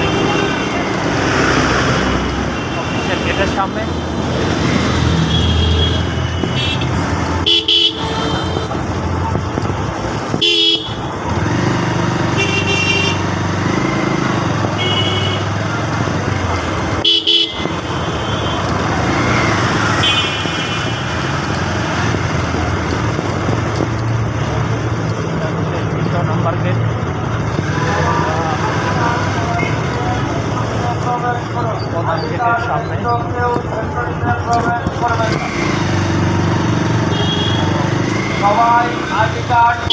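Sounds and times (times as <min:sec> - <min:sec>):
vehicle horns honking: 0:00.0 - 0:01.0, 0:05.1 - 0:08.9, 0:10.3 - 0:11.1, 0:12.3 - 0:15.7, 0:16.9 - 0:21.6, 0:37.0 - 0:38.7
motorbike engine and road noise: 0:00.0 - 0:39.9.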